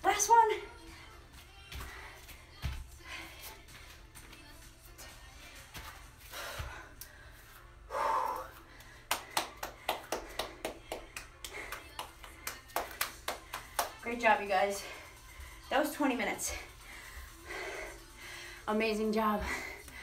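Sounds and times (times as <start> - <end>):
woman clapping hands: 9.0 - 14.0.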